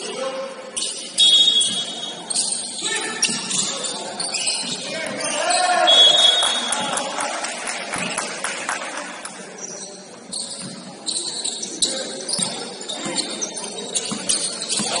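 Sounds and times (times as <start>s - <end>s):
faint voices: 0.0s - 15.0s
sneakers squeaking on court: 0.7s - 6.6s, 9.6s - 15.0s.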